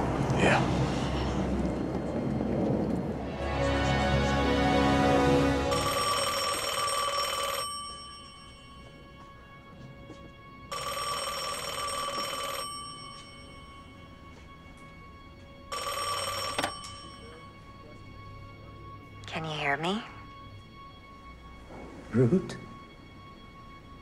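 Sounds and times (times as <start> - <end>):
music: 0.4 - 24.0
payphone ringing: 5.7 - 9.1, 10.7 - 14.0, 15.7 - 17.4.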